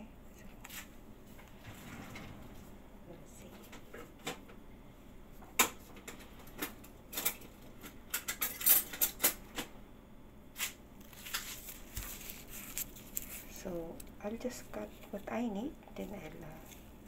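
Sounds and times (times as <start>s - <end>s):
kitchen utensils clattering: 8.1s - 9.4s.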